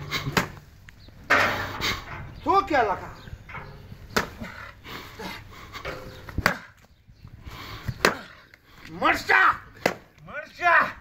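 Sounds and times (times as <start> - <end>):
sharp chopping blows: 0.2 - 0.6, 4.1 - 4.5, 6.2 - 6.8, 8.0 - 8.4, 9.8 - 10.1.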